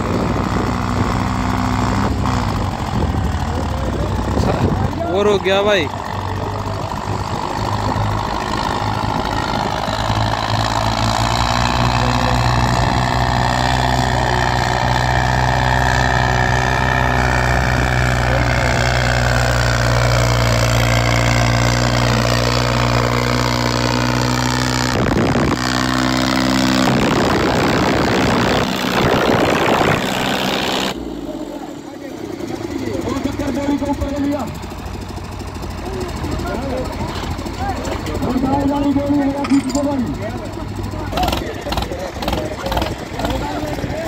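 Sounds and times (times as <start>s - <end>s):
rough rushing noise: 0.0s - 31.7s
tractor engine under load: 0.0s - 44.0s.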